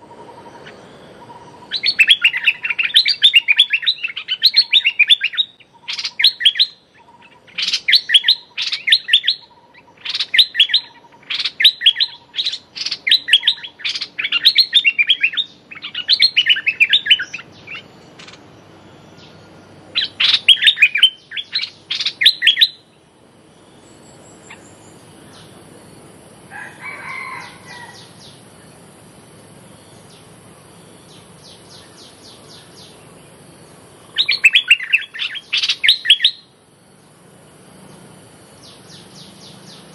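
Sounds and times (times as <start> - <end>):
bird chattering calls: 0.0 - 18.6, 19.9 - 23.0, 23.6 - 25.6, 29.8 - 36.5
faint high hiss: 0.0 - 39.9.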